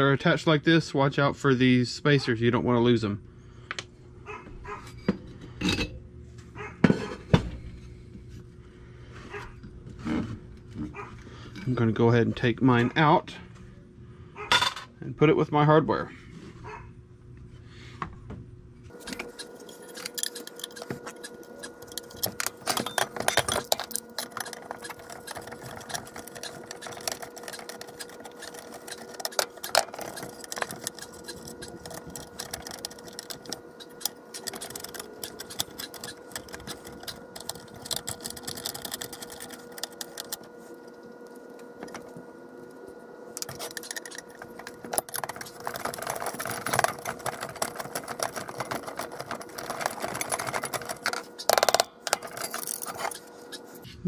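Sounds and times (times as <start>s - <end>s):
metal tools scraping on metal: 19.0s - 40.3s
small parts clinking: 43.4s - 53.2s.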